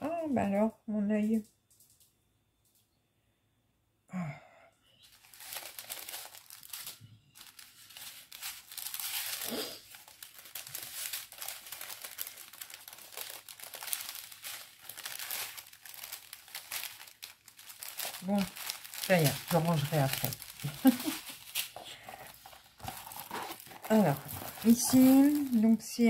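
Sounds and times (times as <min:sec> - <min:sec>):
plastic packaging crinkling: 0:05.0 - 0:26.0.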